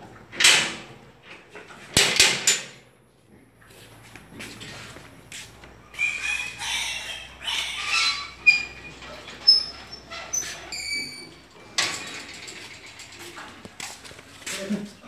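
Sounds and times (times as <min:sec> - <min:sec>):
metal gate clanking and squeaking: 0:02.0 - 0:02.8, 0:06.0 - 0:13.5
pigs squealing: 0:05.9 - 0:11.4.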